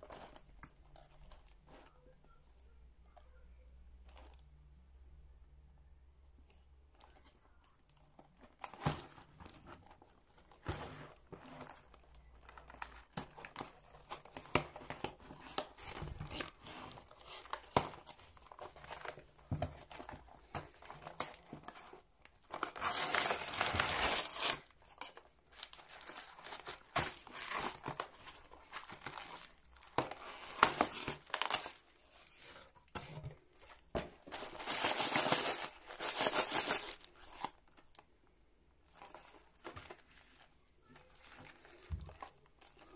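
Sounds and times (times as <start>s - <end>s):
wrappers rustling: 8.2s - 32.8s, 33.5s - 38.0s
cardboard box tearing: 22.6s - 24.7s.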